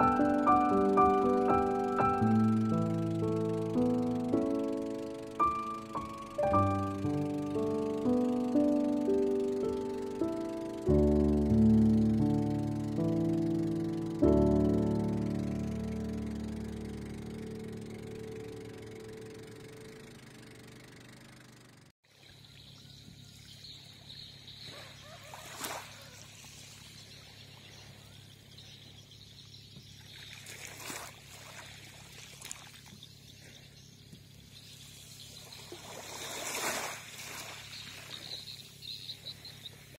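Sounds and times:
steady low hum: 0:00.0 - 0:24.8
water lapping and trickling: 0:22.0 - 0:28.5, 0:29.7 - 0:40.0.

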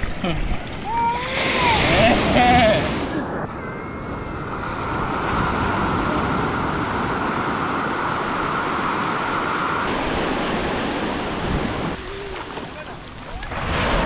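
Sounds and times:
small waves washing on shore: 0:04.4 - 0:14.0.

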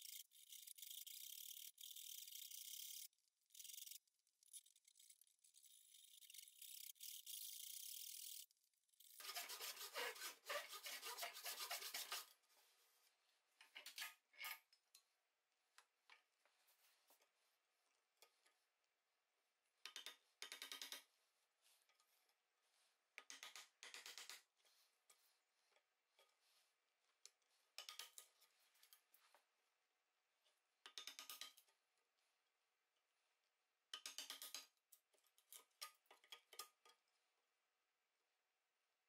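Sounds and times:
tool scraping wood: 0:00.0 - 0:12.3.

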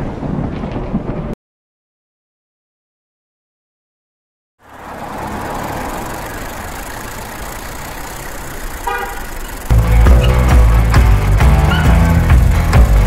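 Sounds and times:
traffic rumble: 0:04.6 - 0:13.0
vehicle horn toot: 0:08.8 - 0:10.4
loud music: 0:09.7 - 0:13.0.

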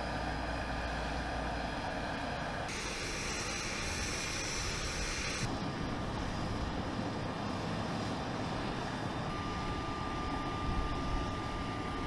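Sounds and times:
aircraft engine rumble: 0:00.0 - 0:12.0
thin steady whine: 0:00.0 - 0:12.0.

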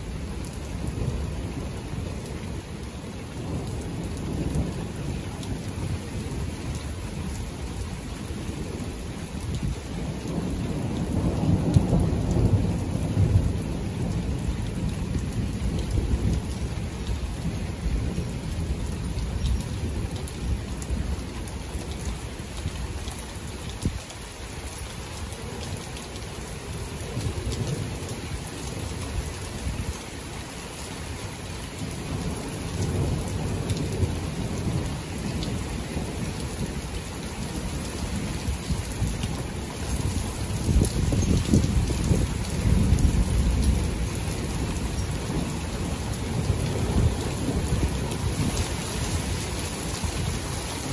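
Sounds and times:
steady rain: 0:00.0 - 0:50.9
rolling thunder: 0:09.5 - 0:21.2, 0:37.6 - 0:50.9.

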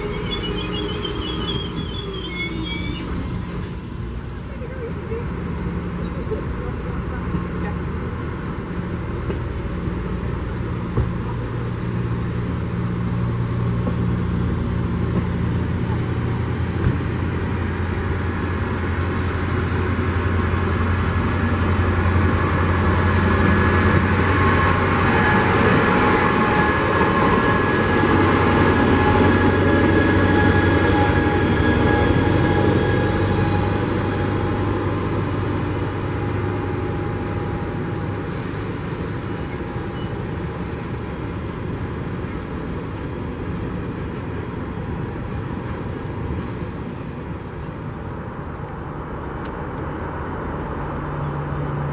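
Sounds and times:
steady high tones: 0:00.0 - 0:03.8
passenger train rumbling past: 0:00.0 - 0:51.9.

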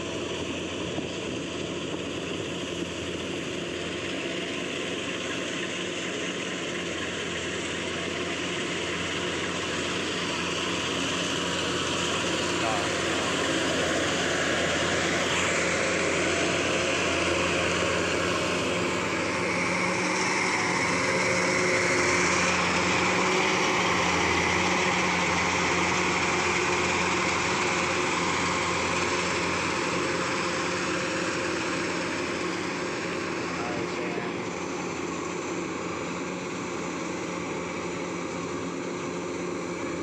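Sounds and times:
combine harvester droning: 0:00.0 - 0:40.0.

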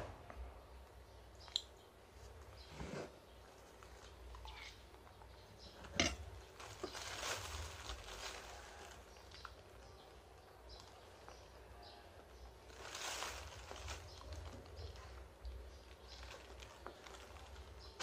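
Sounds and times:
plastic bag rustling: 0:05.8 - 0:18.0.

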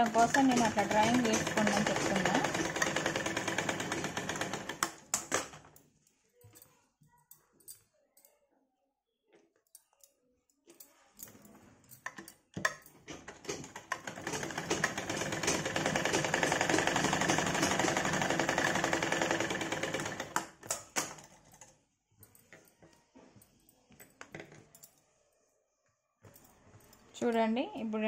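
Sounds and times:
sewing machine stitching: 0:00.0 - 0:05.6, 0:13.0 - 0:21.3.

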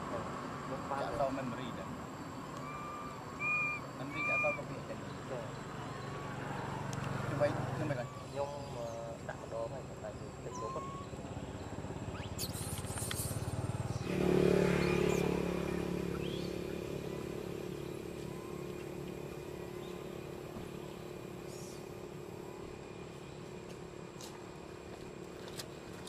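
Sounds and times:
motor engine running: 0:10.8 - 0:21.4.

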